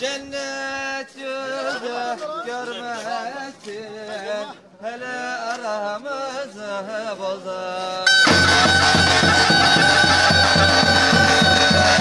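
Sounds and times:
davul beats: 8.1s - 12.0s
zurna long shrill note: 8.1s - 12.0s.

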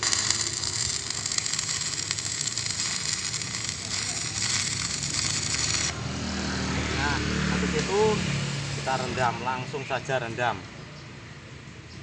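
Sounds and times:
welding arc crackling: 0.0s - 6.0s.

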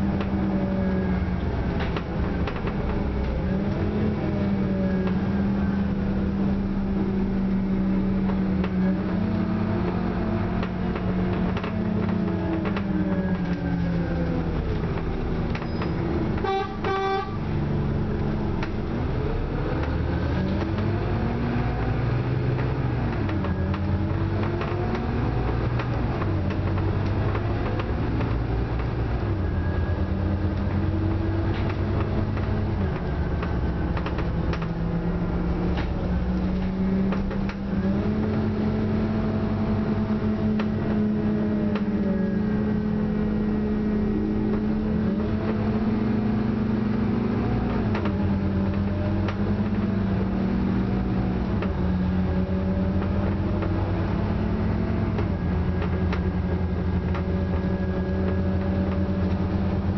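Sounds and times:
bus diesel engine: 0.0s - 59.9s
bus horn toot: 15.8s - 17.5s.

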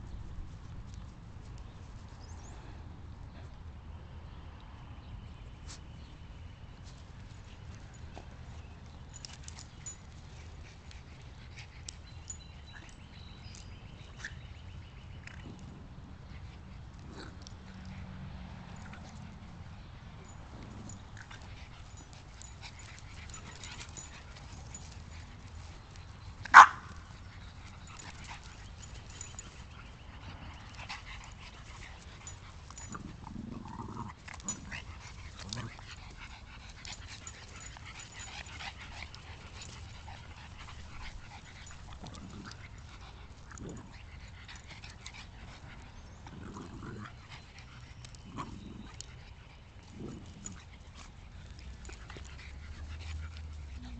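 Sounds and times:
small dogs yipping: 16.2s - 53.9s.

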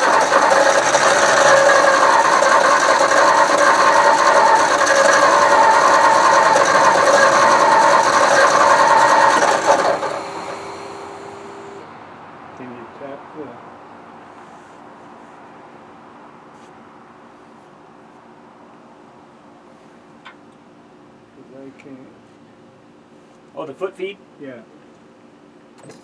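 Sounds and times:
starter motor cranking engine: 0.0s - 11.8s.

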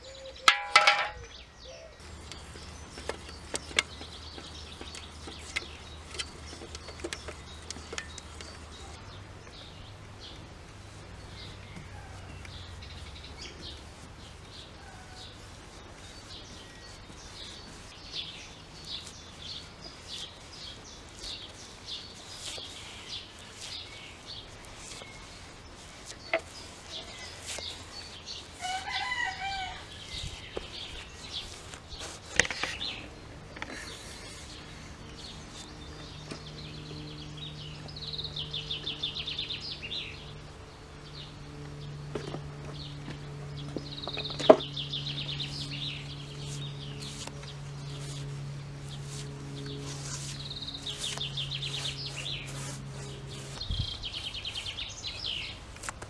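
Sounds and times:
bird chirps: 0.0s - 10.0s.

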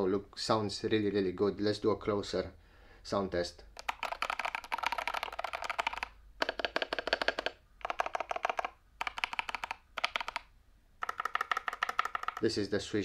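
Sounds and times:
mechanical keyboard typing: 3.8s - 12.5s.

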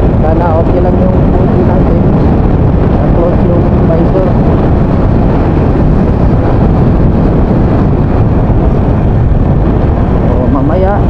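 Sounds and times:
wind and road noise rumble: 0.0s - 11.0s.

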